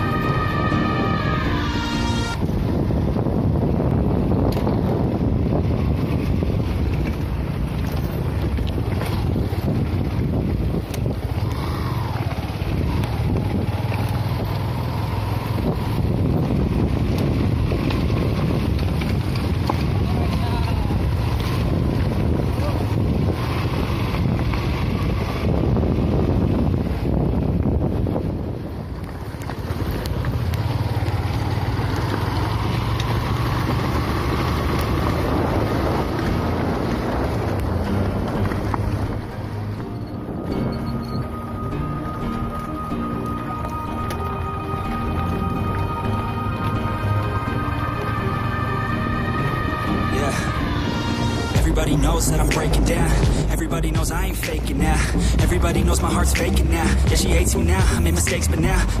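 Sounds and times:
motorcycle on gravel road: 0.0 - 59.0
wind noise on microphone: 0.0 - 59.0.

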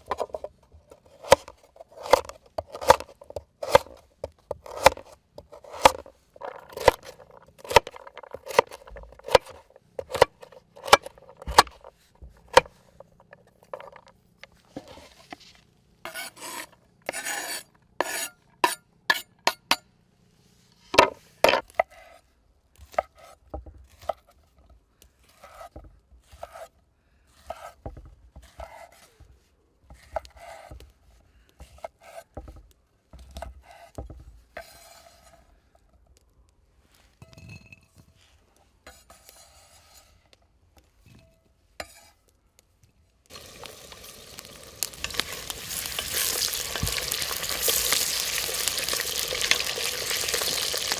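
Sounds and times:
utensil scraping and stirring: 4.5 - 19.3, 33.3 - 35.7, 38.5 - 40.4, 41.2 - 42.3, 43.3 - 50.9
food sizzling in a pan: 43.3 - 50.9.

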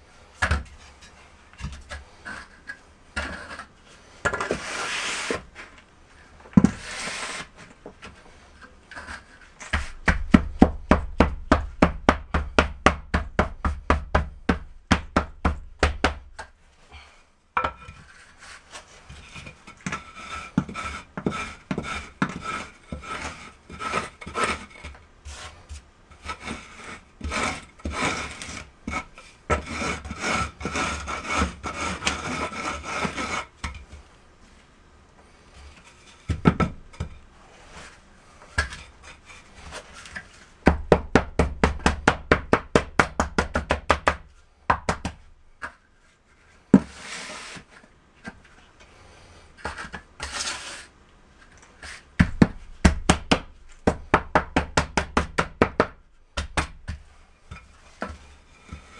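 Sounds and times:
trowel scraping cement mortar: 1.6 - 5.7, 6.6 - 10.0, 18.0 - 33.6, 46.7 - 47.9, 49.2 - 51.0, 57.5 - 58.9.

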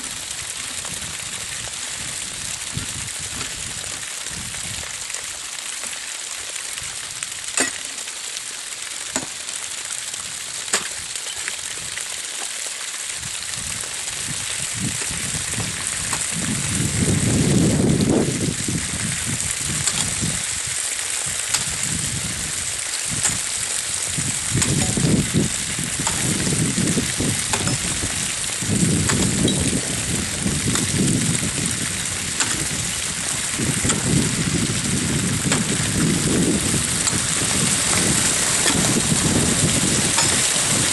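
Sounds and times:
wind buffeting microphone: 0.0 - 4.8, 13.2 - 40.9.

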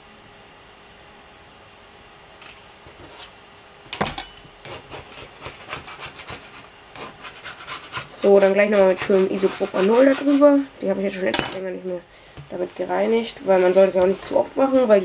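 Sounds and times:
metal scraper rasping on plastic sheet: 4.6 - 10.5.

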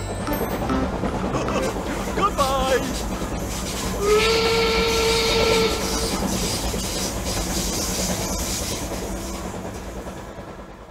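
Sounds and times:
steam hissing: 2.0 - 10.4
toy train whistle: 4.0 - 6.2.

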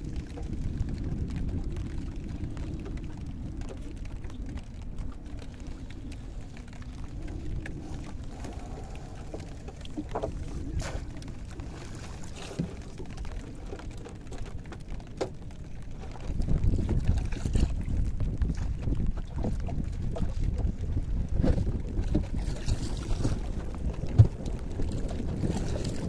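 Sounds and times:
water drips and splashes: 0.0 - 26.0
wind rumbling on microphone: 0.0 - 26.0
small knocks on wooden boat: 24.1 - 24.4.

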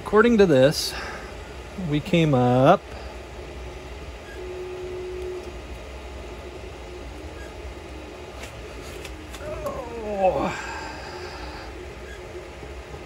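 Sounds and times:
printer hum and fan noise: 0.0 - 13.0
faint short steady tone: 4.2 - 5.6.

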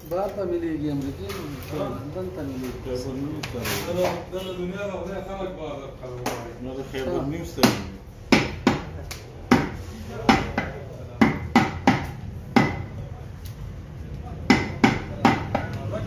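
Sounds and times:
cleaver chopping meat on wood: 7.6 - 8.9, 9.5 - 12.9, 14.5 - 15.8.

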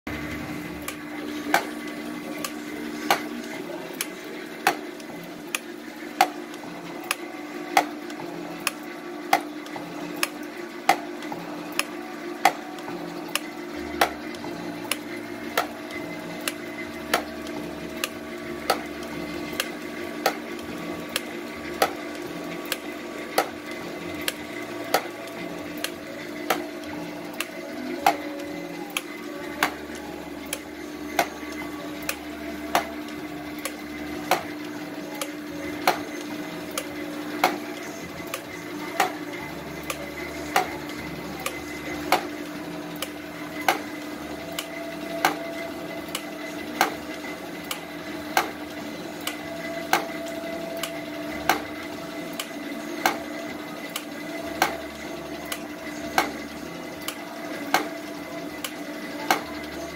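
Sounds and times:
machine hum: 0.0 - 59.9.

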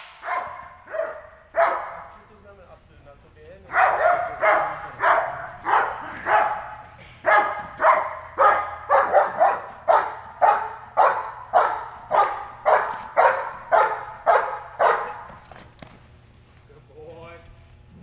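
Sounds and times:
dog barking forcefully: 0.2 - 2.1, 3.7 - 15.4.

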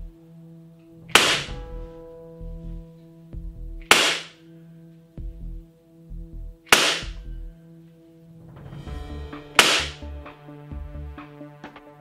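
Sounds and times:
airsoft pistol shot: 1.1 - 1.6, 3.8 - 4.3, 6.7 - 7.2, 9.6 - 10.0.

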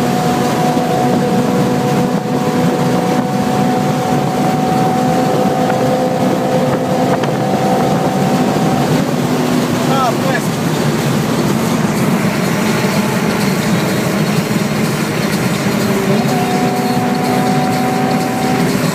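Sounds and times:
car engine droning at high revs: 0.0 - 18.9
wind and road noise: 0.0 - 18.9.

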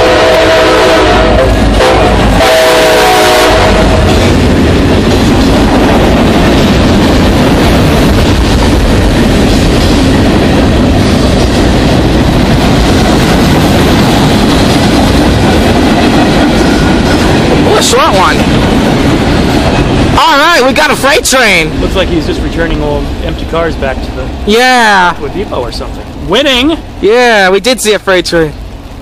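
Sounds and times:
train horn: 0.0 - 4.3
freight cars rolling past: 3.8 - 24.5.

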